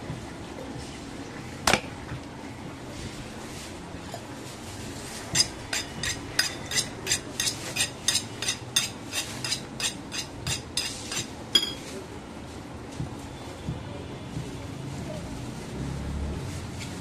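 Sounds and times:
knife sharpening metal strokes: 5.4s - 11.8s.

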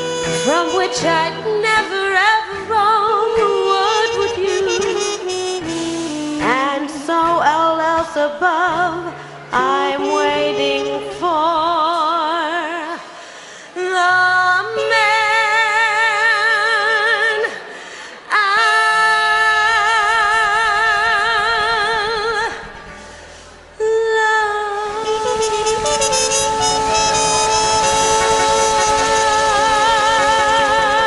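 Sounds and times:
woman singing with vibrato: 0.0s - 5.6s, 6.2s - 22.8s, 23.8s - 31.0s
steady bass line: 24.9s - 31.0s.

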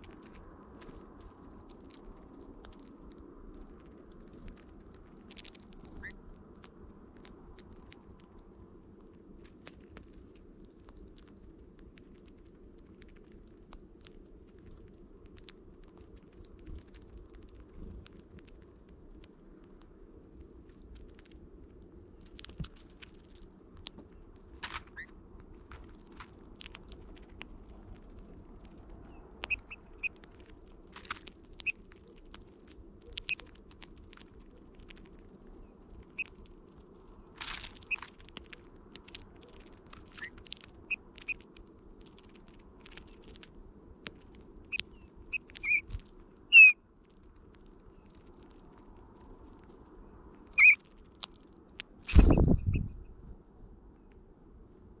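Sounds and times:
beaks cracking seeds: 0.0s - 52.8s
soft whistled bird calls: 44.7s - 45.9s, 46.5s - 46.8s, 50.5s - 50.8s, 52.1s - 53.2s.

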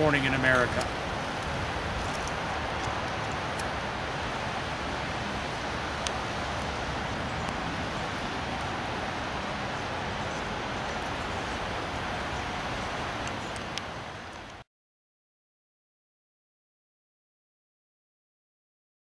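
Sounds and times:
rain falling: 0.0s - 14.6s.

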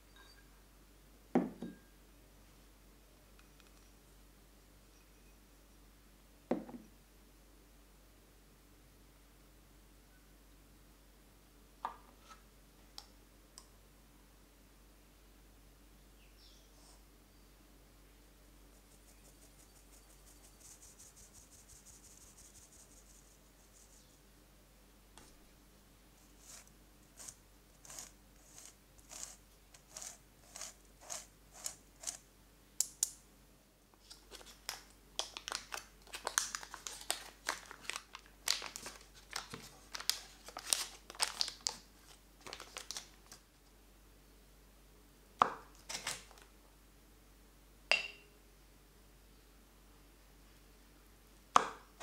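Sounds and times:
foil wrapper crinkling: 34.0s - 43.4s.

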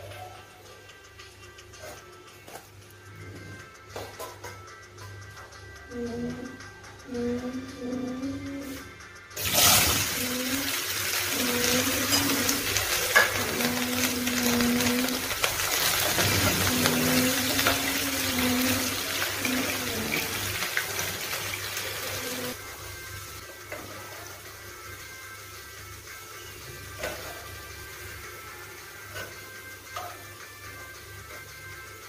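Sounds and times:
vegetables sizzling in oil: 9.4s - 32.0s
spatula stirring in pan: 11.0s - 22.6s.

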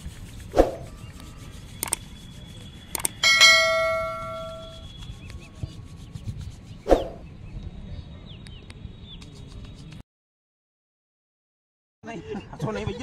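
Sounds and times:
bright bell ding: 3.2s - 4.8s.

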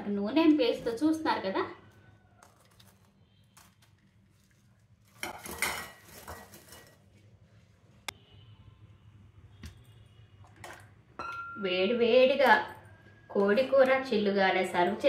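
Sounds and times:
fried food clattering into bowl: 3.6s - 7.1s.

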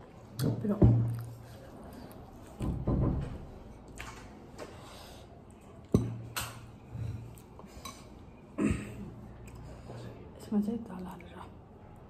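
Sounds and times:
chewing: 1.1s - 2.6s.

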